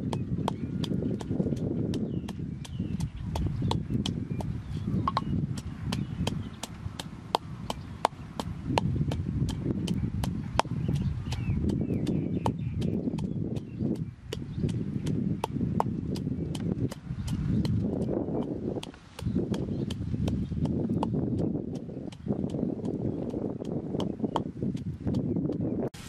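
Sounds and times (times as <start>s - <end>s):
wooden pestle knocking in mortar: 0.0s - 25.7s.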